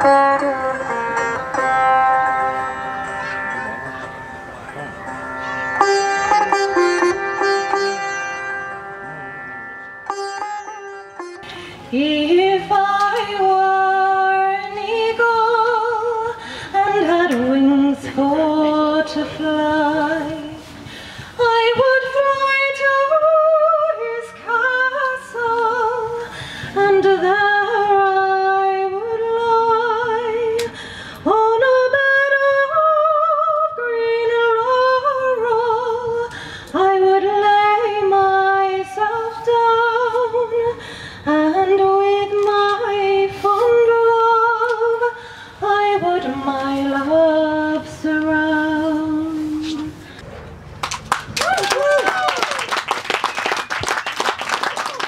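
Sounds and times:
woman singing slow melody: 11.9s - 20.7s, 21.4s - 50.0s.

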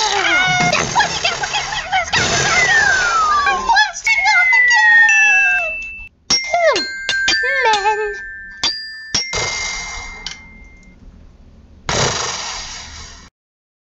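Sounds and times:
sharp ringing dings: 4.1s - 11.0s.

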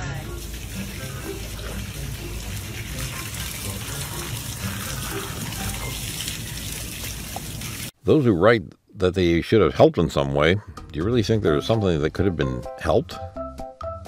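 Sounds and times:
garden hose spraying: 0.0s - 8.0s.

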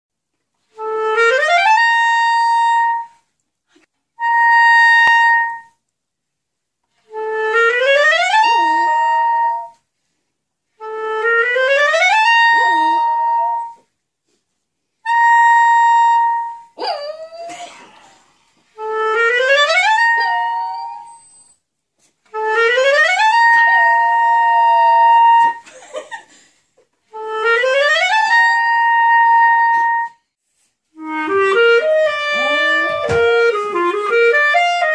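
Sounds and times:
clarinet playing rising glides: 0.8s - 3.2s, 4.2s - 5.8s, 7.1s - 9.8s, 10.7s - 13.9s, 15.1s - 17.5s, 18.8s - 21.4s, 22.3s - 25.6s, 27.1s - 30.2s, 31.0s - 34.9s.

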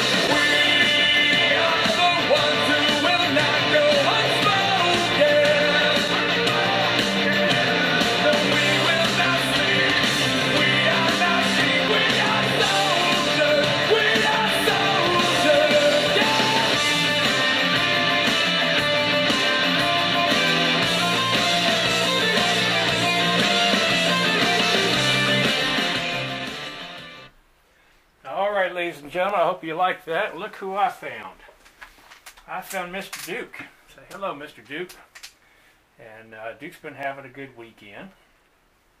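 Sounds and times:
hard rock song through speaker: 0.0s - 27.3s.

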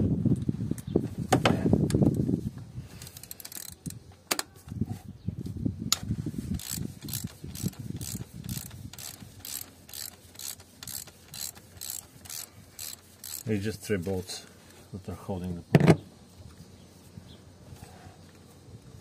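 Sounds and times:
ratchet wrench clicking: 3.0s - 4.0s, 5.9s - 13.6s.

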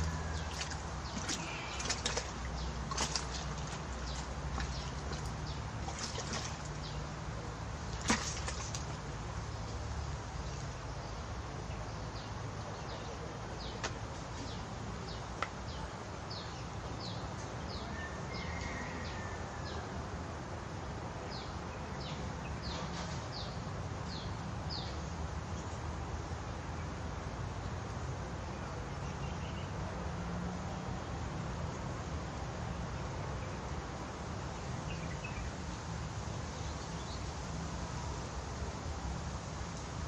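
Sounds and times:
low outdoor rumble: 0.0s - 30.0s.

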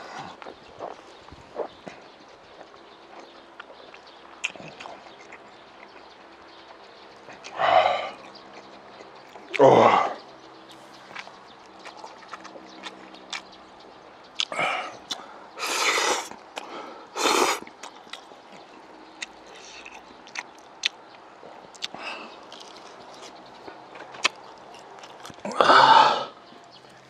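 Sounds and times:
soft chewing: 0.0s - 25.6s, 26.3s - 27.0s
wet mouth clicks: 14.4s - 23.4s.

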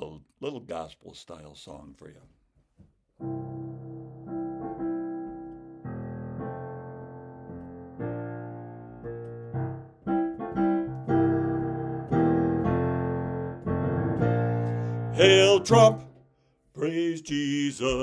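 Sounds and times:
piano chords ringing: 3.2s - 16.2s.

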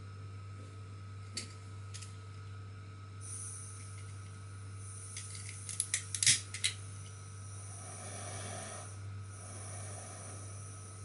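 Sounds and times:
gas flame hiss: 3.2s - 4.1s, 4.8s - 11.0s.

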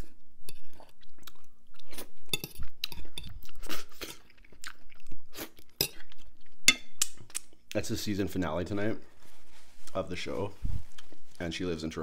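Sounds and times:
person chewing crunchy food: 0.0s - 7.8s.

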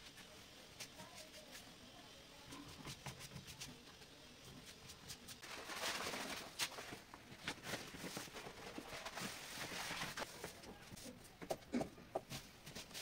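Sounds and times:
wallpaper rustling and crinkling: 4.6s - 11.2s.

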